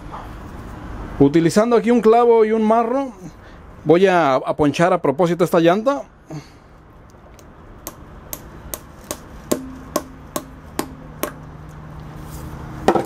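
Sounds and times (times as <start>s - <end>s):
hammer tapping a nail: 7.8s - 11.5s.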